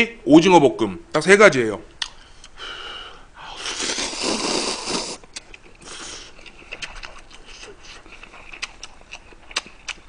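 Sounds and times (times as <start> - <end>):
noodles slurped loudly: 3.6 - 5.2
chewing with wet clicks: 5.2 - 10.0.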